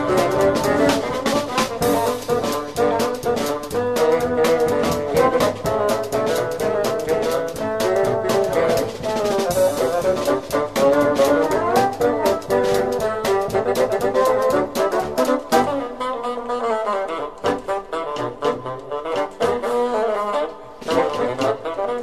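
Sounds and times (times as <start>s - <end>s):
steady drum beat: 0.0s - 16.0s
jazz brass horns melody: 0.0s - 22.0s.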